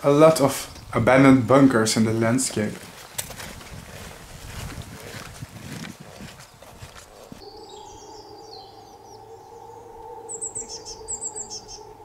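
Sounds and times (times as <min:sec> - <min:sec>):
birds chirping and trilling: 0:00.0 - 0:03.6, 0:06.3 - 0:12.0
footsteps on grass: 0:02.0 - 0:07.5.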